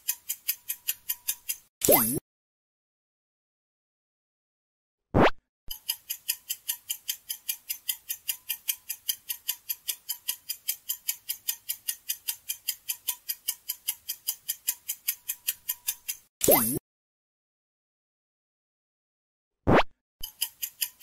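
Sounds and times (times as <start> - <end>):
rapid clock ticks: 0.0 - 1.7, 5.7 - 16.7, 20.2 - 21.0.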